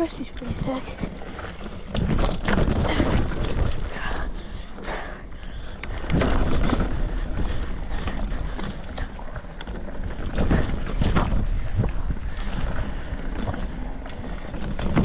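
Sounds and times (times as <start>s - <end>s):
mountain bike rumbling and rattling: 0.0s - 15.0s
wind buffeting microphone: 0.0s - 15.0s
sharp clicks: 5.8s - 6.3s.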